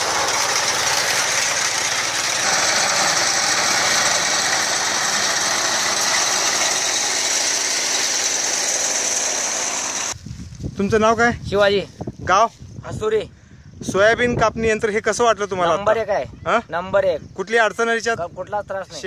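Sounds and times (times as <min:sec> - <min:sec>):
reaper engine running: 0:00.0 - 0:10.2.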